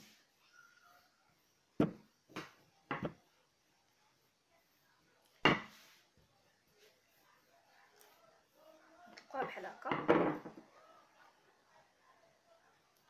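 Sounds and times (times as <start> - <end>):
rolling pin knocking on table: 1.8 - 3.2, 5.4 - 5.7.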